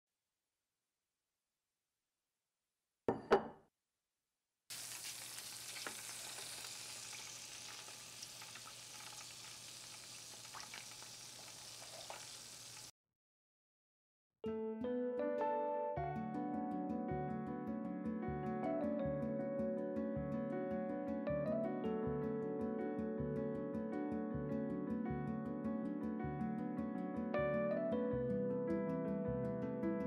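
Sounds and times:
roast chicken sizzling: 4.7s - 12.9s.

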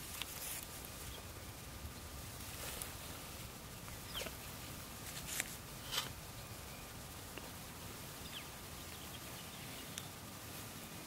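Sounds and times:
chickens preening rustles: 0.0s - 6.3s
low hiss: 0.0s - 11.0s.

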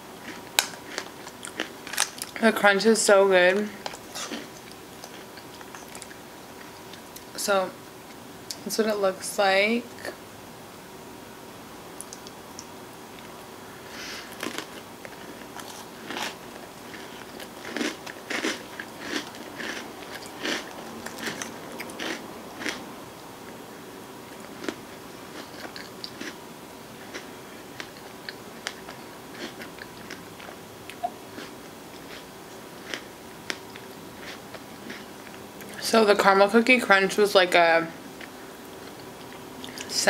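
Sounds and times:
chewing crunchy ice cream: 0.2s - 2.4s, 3.8s - 7.3s, 14.2s - 22.8s, 24.2s - 26.4s, 27.0s - 35.8s.

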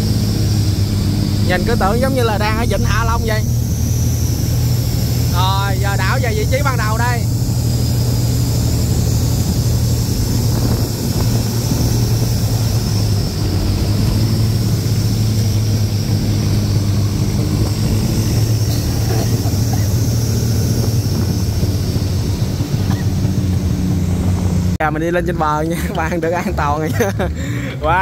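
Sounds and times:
boat engine droning: 0.0s - 28.0s.

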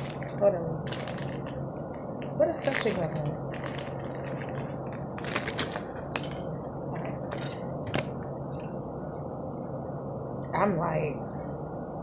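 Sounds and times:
plastic packaging crinkling: 0.0s - 8.2s.

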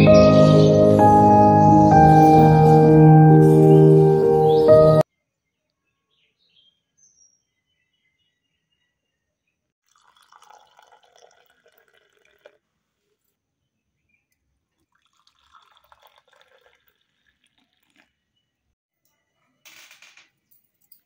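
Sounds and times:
liquid pouring into clay cup: 9.8s - 12.6s, 14.8s - 18.3s.

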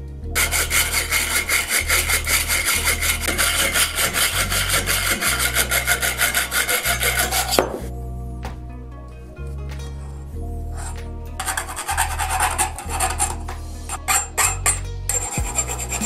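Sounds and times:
hacksaw cutting metal tube: 0.4s - 7.9s, 10.8s - 16.0s.

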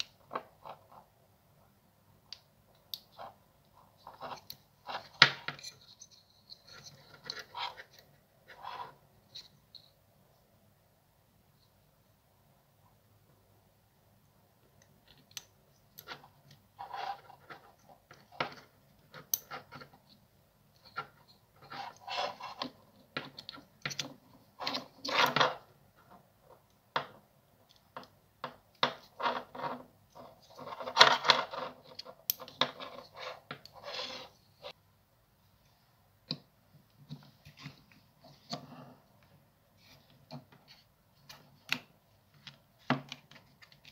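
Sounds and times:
metal terminals clicking and scraping: 28.8s - 34.8s.

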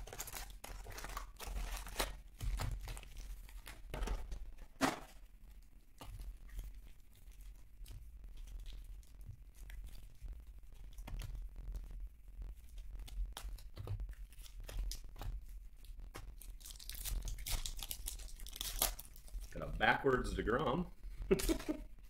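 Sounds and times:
foil wrappers tearing and crinkling: 0.0s - 5.2s, 12.6s - 19.8s.

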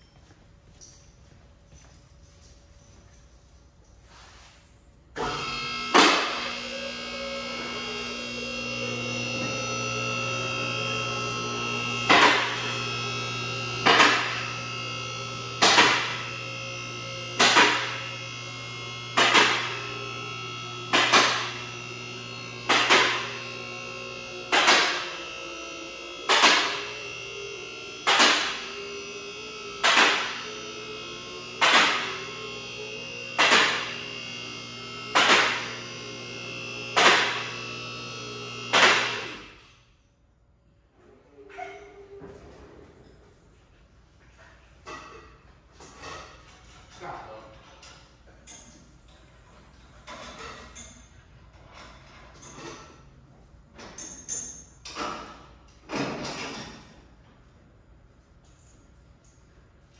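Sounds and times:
hydraulic pump motor humming: 5.2s - 39.6s.

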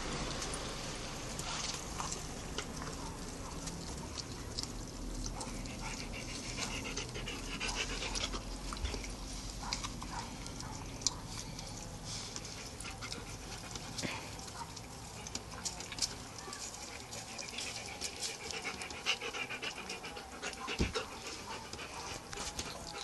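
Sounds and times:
puppies lapping food: 0.0s - 23.0s.

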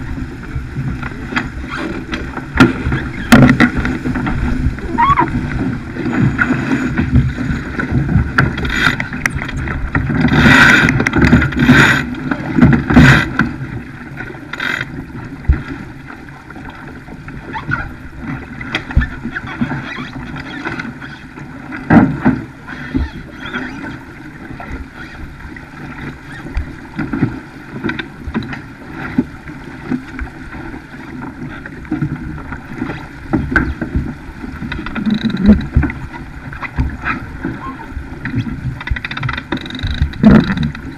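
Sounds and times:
wind buffeting microphone: 0.0s - 14.0s
water rushing past hull: 0.0s - 40.9s.

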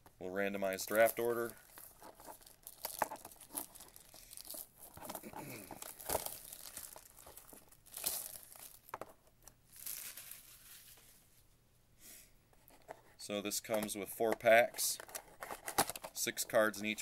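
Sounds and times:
plastic shrink-wrap crinkling and tearing: 0.8s - 9.0s, 9.7s - 11.1s.

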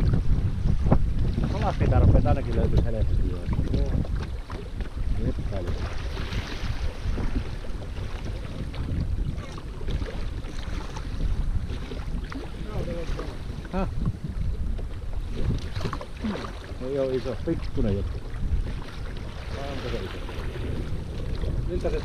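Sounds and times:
water washing around boat: 0.0s - 22.0s
wind rumbling on microphone: 0.0s - 22.0s.

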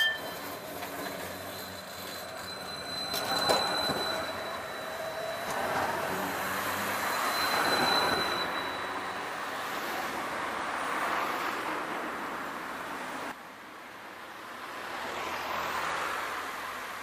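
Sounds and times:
tram wheels squealing: 0.0s - 10.2s
tram rolling noise: 0.0s - 13.4s.

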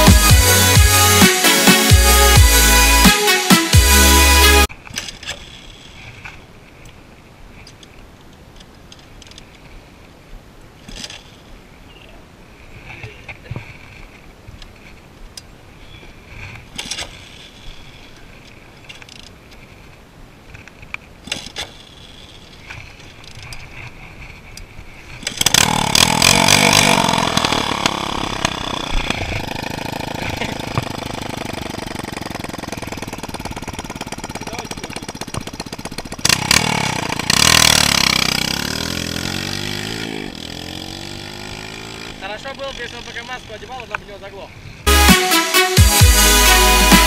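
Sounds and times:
dirt bike engine revving: 0.0s - 4.7s, 25.3s - 43.8s, 44.9s - 47.0s
dirt bike engine failing to start: 4.8s - 6.4s, 25.0s - 43.8s.

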